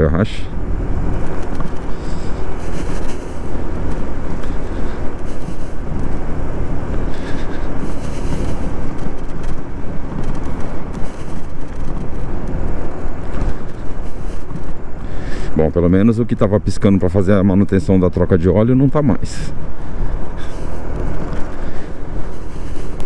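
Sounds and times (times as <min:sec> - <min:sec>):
wind rumble on microphone: 0:00.0 - 0:23.0
scooter engine running: 0:00.5 - 0:15.5.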